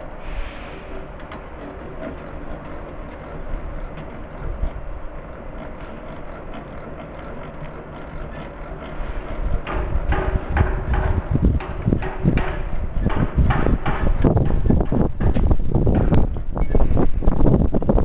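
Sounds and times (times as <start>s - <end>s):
handwheel turning rumble: 1.0s - 18.0s
faint ticks: 5.6s - 8.7s.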